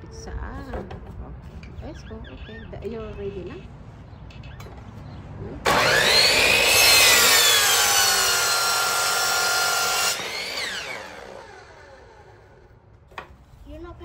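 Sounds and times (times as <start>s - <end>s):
miter saw motor whine: 5.7s - 12.7s.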